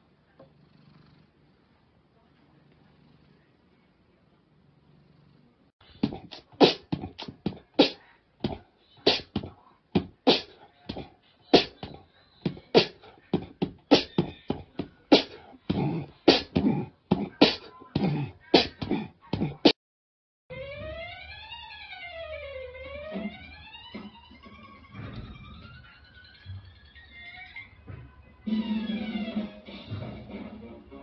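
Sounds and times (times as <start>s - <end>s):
faint low hum: 0.0s - 17.0s
beatboxing: 5.9s - 19.8s.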